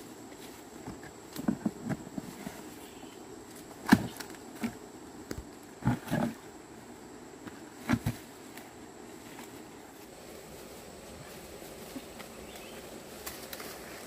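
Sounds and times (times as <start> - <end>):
faint high insect tone: 0.0 - 14.0
footsteps crunching through dry leaves: 9.2 - 14.0.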